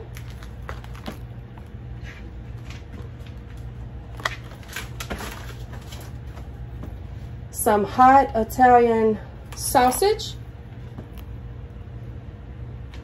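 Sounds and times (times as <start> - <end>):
plastic packaging rustling: 0.0 - 6.7
steady low hum: 0.0 - 13.0.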